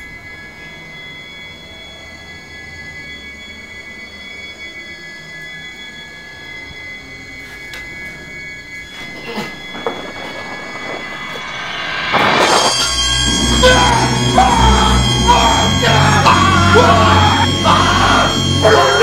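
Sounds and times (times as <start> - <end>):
shrill screech of high tones: 0.0 - 19.0
noisy rumble: 9.0 - 19.0.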